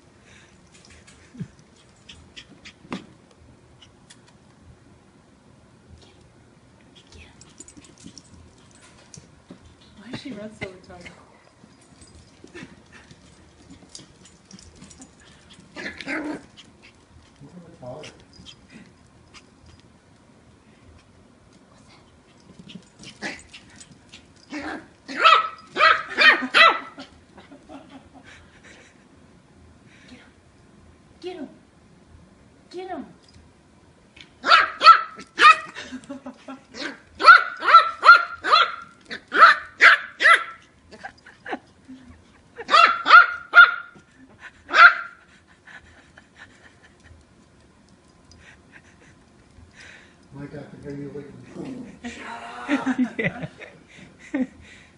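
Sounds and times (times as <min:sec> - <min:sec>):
puppy barking: 0:25.1 - 0:27.0, 0:34.4 - 0:35.8, 0:36.8 - 0:40.6, 0:42.6 - 0:44.0, 0:44.7 - 0:45.2.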